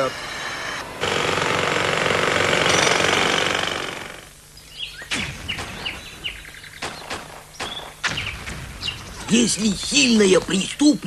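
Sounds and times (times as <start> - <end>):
birds chirping: 4.2 - 11.0.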